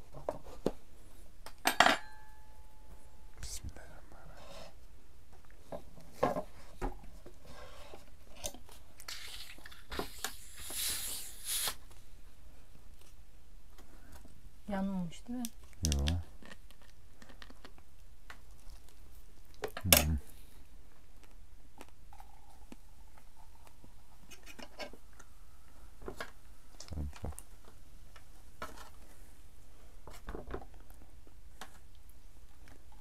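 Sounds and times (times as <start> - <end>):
dishes and cutlery clinking: 1.6 - 2.5.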